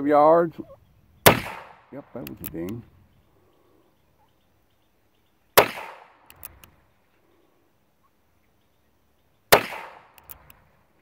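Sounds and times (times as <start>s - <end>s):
revolver gunshot with echo: 1.2s - 2.0s, 5.6s - 6.3s, 9.5s - 10.2s.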